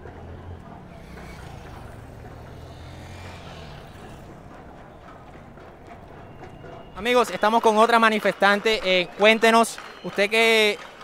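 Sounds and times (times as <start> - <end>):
vehicle engine humming: 0.0 - 7.7.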